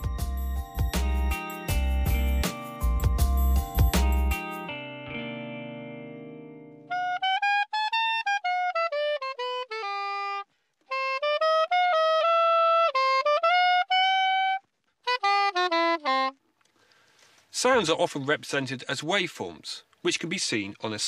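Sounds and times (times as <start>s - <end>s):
ringing chord: 0.0s - 6.9s
soprano saxophone melody: 0.0s - 16.7s.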